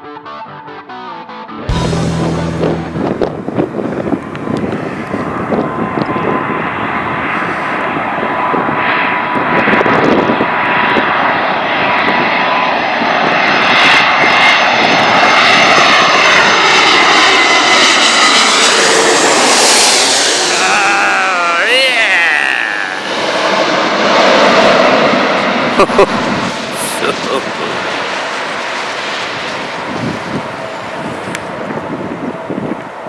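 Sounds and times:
jet engine whine: 1.7 - 33.0
jet plane flying overhead: 1.7 - 33.0.

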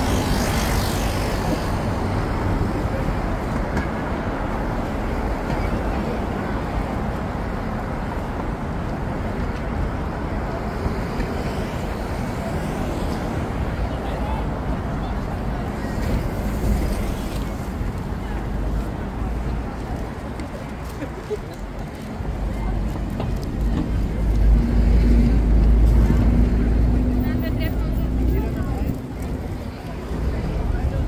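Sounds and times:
road traffic: 0.0 - 31.0
murmur of voices: 12.0 - 31.0.

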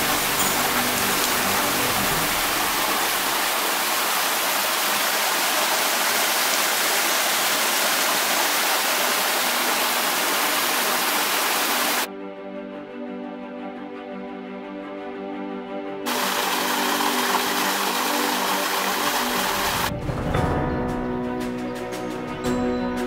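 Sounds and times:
waterfall cascading over rock: 0.0 - 12.1, 16.1 - 19.9.

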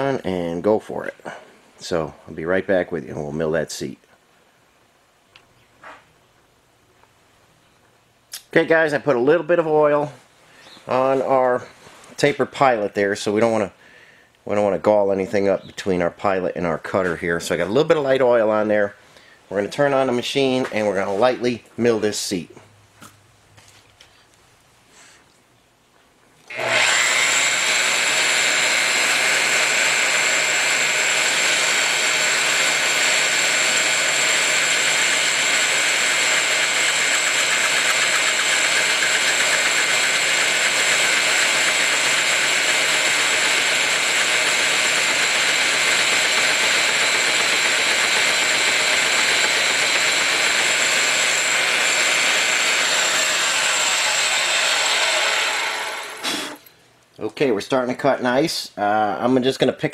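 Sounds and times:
machine spindle whining: 26.5 - 56.6.

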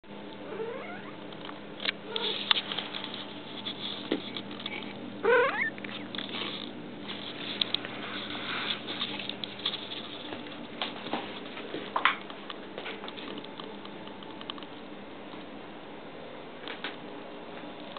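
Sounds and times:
mouse squealing: 5.2 - 6.6
paws pattering on tile floor: 5.6 - 13.5.

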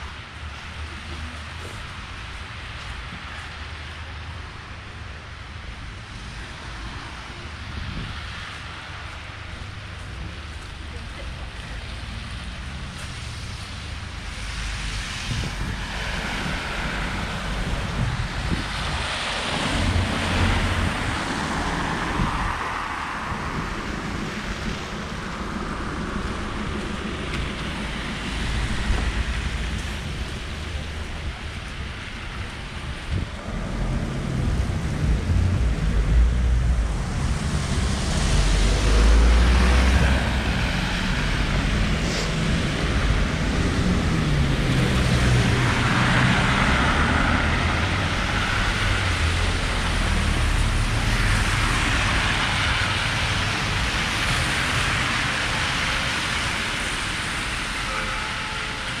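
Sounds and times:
road traffic passing: 0.0 - 59.0
low rumble: 14.8 - 52.3.

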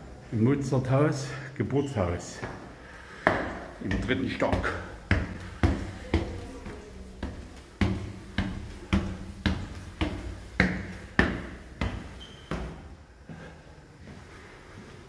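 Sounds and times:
footsteps on stone stairs: 2.2 - 14.2.

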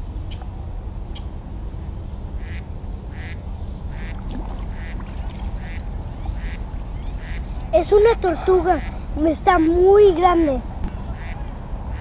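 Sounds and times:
steady low rumble: 0.0 - 12.0
short animal calls: 4.0 - 7.6.

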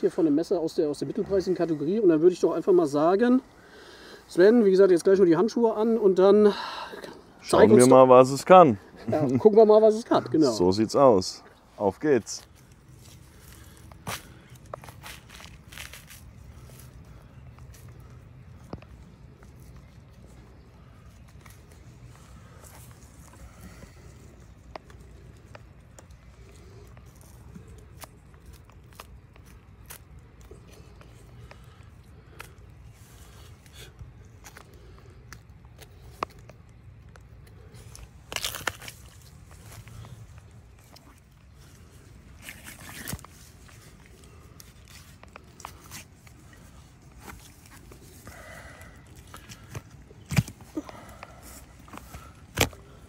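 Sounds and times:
wet clicks and rustles: 11.1 - 53.0.

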